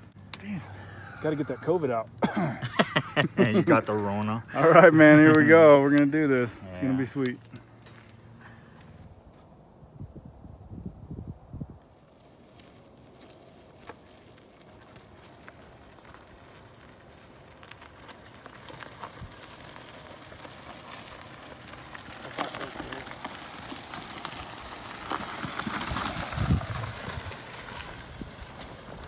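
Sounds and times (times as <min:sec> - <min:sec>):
tyres crunching over gravel: 0:00.0 - 0:09.5, 0:12.0 - 0:29.0.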